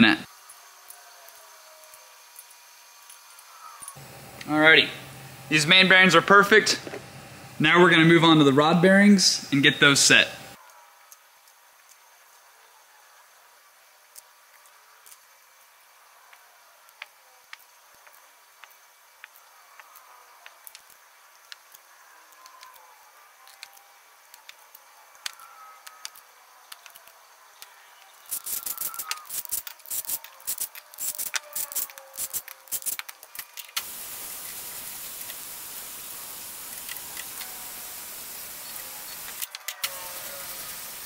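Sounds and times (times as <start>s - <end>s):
steady hiss: 0.0s - 41.0s
metal parts clinking: 28.3s - 33.8s.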